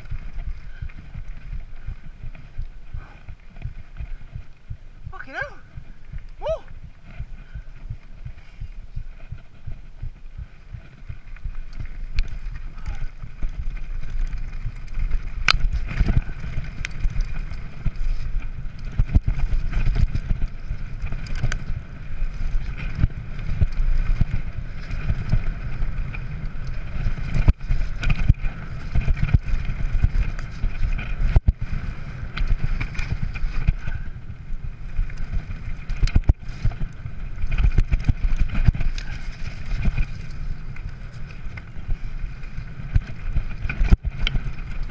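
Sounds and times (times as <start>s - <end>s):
wind buffeting microphone: 0.0s - 44.9s
bike clattering over bumps: 10.7s - 44.9s.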